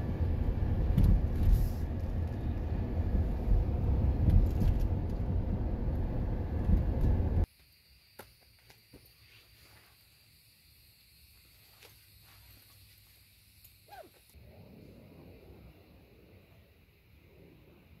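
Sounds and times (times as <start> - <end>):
road and engine rumble inside vehicle: 0.0 - 7.5.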